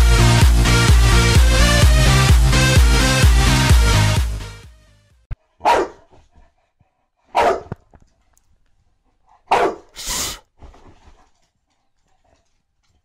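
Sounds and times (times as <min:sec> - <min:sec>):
dog barking: 0:05.6 - 0:06.2, 0:07.3 - 0:07.8, 0:09.4 - 0:10.0
short hiss-like burst: 0:10.0 - 0:10.4.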